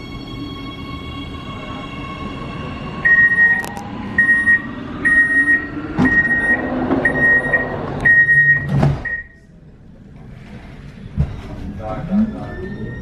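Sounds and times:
door warning beeps: 3.0 - 9.4
sliding doors closing thud: 5.8 - 9.2.

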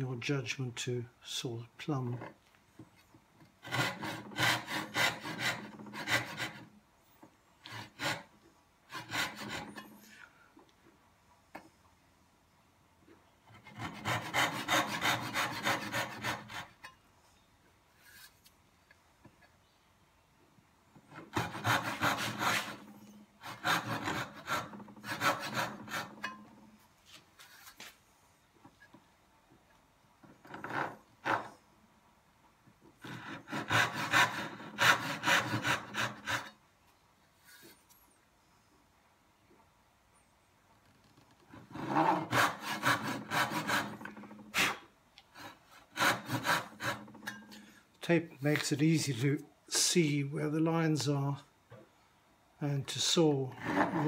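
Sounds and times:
backsaw cutting wood: 3.6 - 6.7, 7.6 - 8.3, 8.9 - 10.0, 13.5 - 16.8, 21.1 - 26.6, 33.0 - 36.6, 41.6 - 47.4, 53.6 - 54.0.

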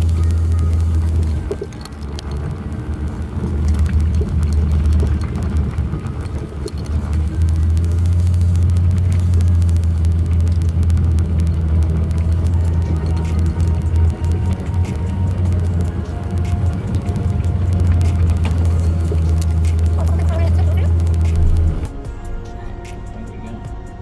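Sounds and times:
tyres crunching on stones: 0.0 - 22.1
engine and road rumble: 0.0 - 24.0.

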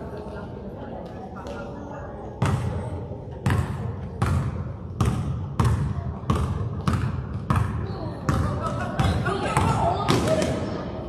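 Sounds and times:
basketball bouncing on gym floor: 2.4 - 10.6.

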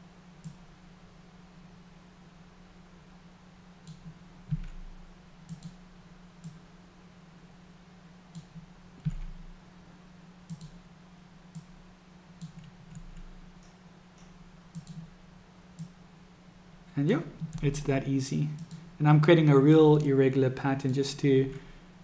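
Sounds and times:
faint steady low hum: 0.0 - 22.0
computer mouse clicking: 0.4 - 0.6, 3.8 - 4.8, 5.5 - 5.8, 6.4 - 6.6, 8.3 - 9.4, 10.5 - 10.8, 11.5 - 11.7, 12.4 - 15.1, 15.8 - 16.0, 18.6 - 18.9.

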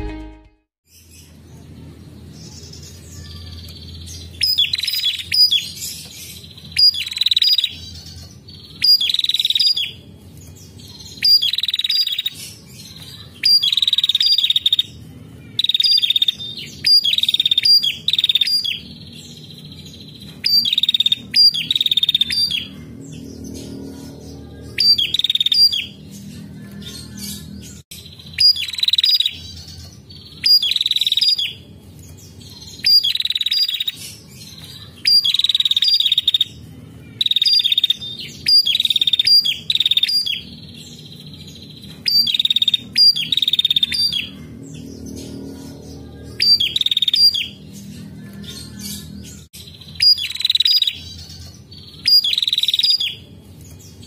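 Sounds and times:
bird buzzy trilled calls: 34.8 - 53.3.

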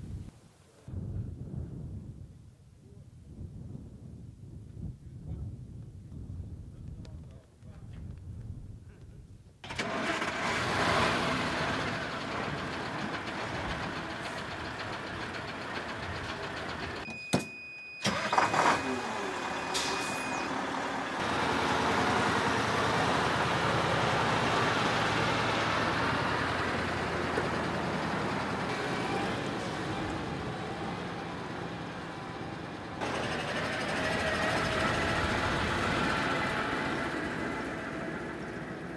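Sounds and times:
truck diesel engines running: 9.6 - 17.0, 18.0 - 38.9
high beep: 17.1 - 20.6.

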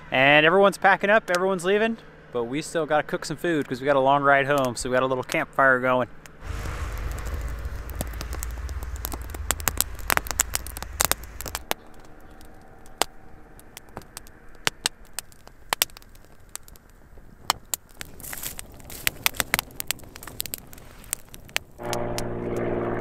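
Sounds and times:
campfire crackling and snapping: 6.2 - 22.3
low rumble: 6.4 - 23.0.

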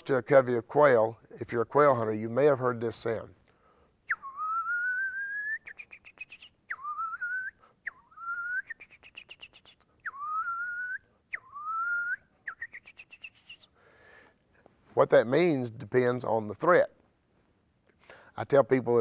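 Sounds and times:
short ticking whistle notes: 4.1 - 13.7
person whistling bird call: 4.1 - 13.8.

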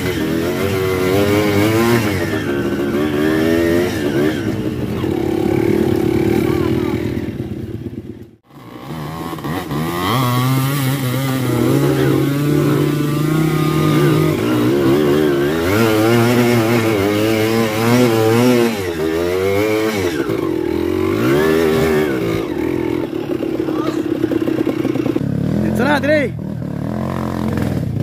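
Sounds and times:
dirt bike engine revving: 0.0 - 28.0.

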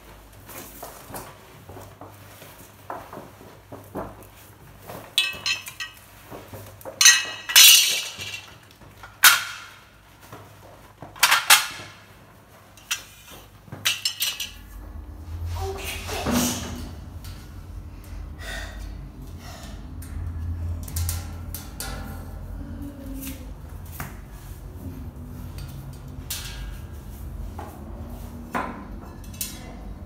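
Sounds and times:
low hum: 14.2 - 30.0.

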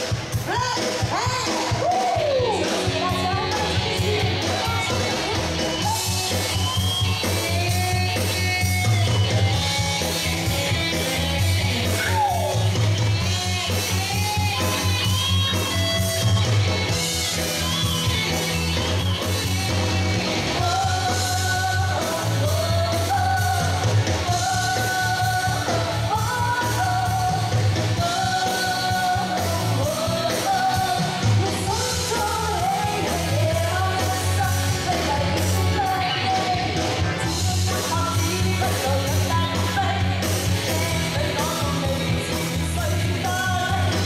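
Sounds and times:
live pop band playing: 0.0 - 44.0
woman singing lead vocal: 0.3 - 8.8, 20.5 - 44.0.

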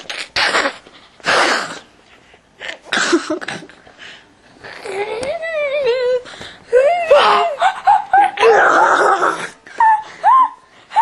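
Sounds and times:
wavering voiced sound: 4.7 - 11.0.

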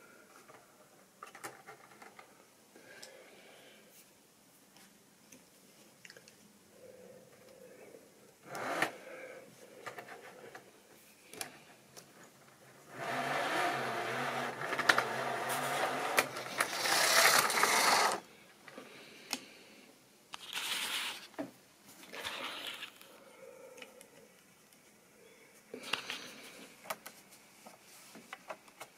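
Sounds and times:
small electric motor whirring: 12.9 - 18.2
scrapes and clicks of handling: 20.3 - 23.2.

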